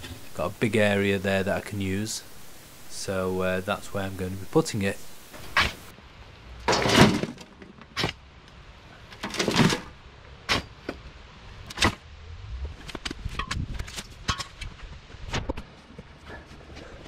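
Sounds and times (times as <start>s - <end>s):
earth thudding into metal wheelbarrow: 6.7s - 8.1s.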